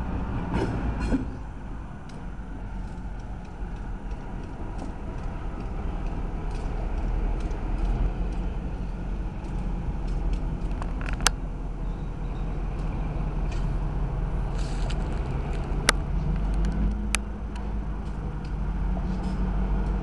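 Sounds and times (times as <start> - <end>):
diesel locomotive engine rumbling: 0.0 - 20.0.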